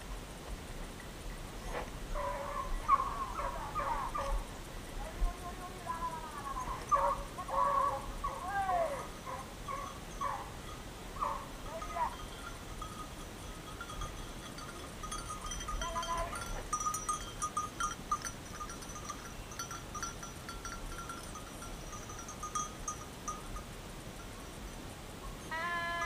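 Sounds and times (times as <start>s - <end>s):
distant dogs baying: 1.6s - 4.6s, 6.2s - 22.7s
faint bells tinkling: 5.4s - 7.6s, 8.6s - 26.0s.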